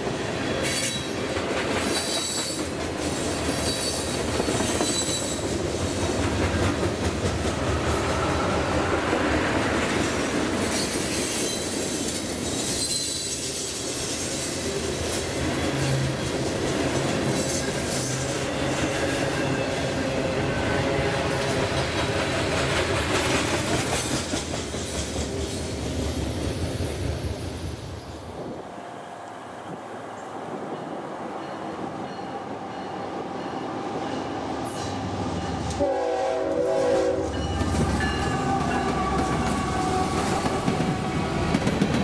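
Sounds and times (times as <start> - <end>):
high wheel squeal: 12.5 - 13.8
freight train wheels clattering: 21.3 - 25.9, 37.2 - 42.0.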